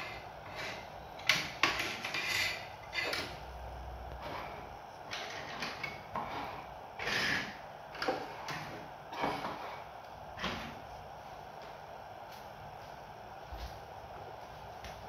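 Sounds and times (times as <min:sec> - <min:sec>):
plastic toys scraping on tabletop: 0:00.0 - 0:01.0, 0:01.7 - 0:03.4, 0:05.2 - 0:07.6.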